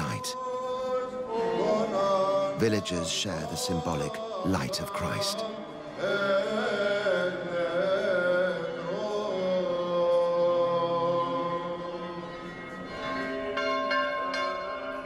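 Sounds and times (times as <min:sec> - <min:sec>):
church bells ringing: 0:12.5 - 0:15.0.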